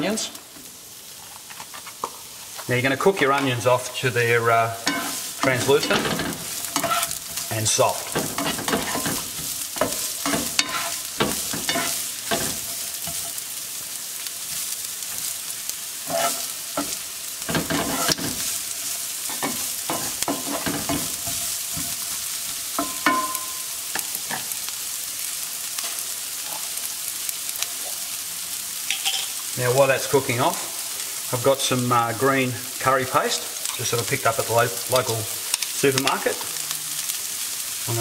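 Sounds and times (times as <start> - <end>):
onions sizzling in frying pan: 0.0 - 38.0
spatula scraping pan: 4.8 - 13.4, 16.0 - 24.6, 28.9 - 29.4.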